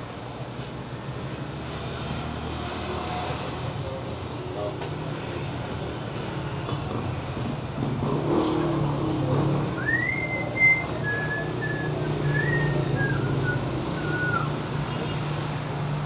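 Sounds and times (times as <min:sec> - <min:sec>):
person whistling a tune: 0:09.8 - 0:14.6.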